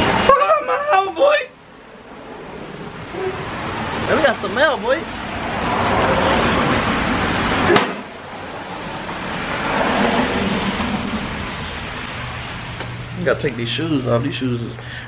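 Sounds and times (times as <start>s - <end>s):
tyres hissing on wet road: 1.8s - 13.0s.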